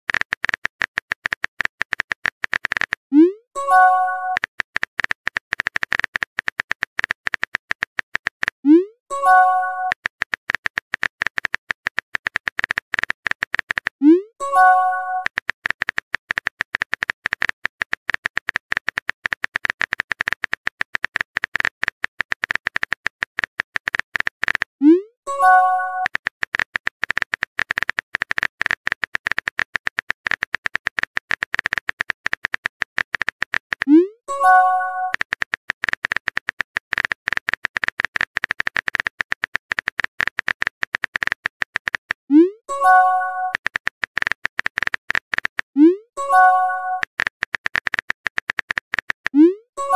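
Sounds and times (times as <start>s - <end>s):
keyboard typing clicks: 0.1s - 49.9s
message sent chime: 3.6s - 4.4s, 9.1s - 9.9s, 14.4s - 15.3s, 25.3s - 26.1s, 34.3s - 35.1s, 42.7s - 43.6s, 46.2s - 47.0s.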